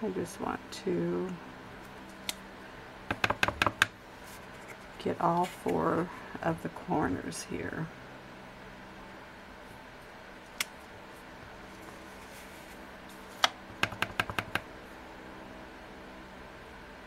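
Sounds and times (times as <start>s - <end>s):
faint room hum: 0.0s - 17.0s
acrylic block tapping on surface: 13.8s - 14.6s.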